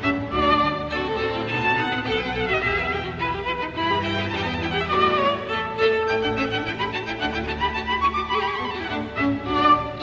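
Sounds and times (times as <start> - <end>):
string orchestra playing: 0.0 - 10.0.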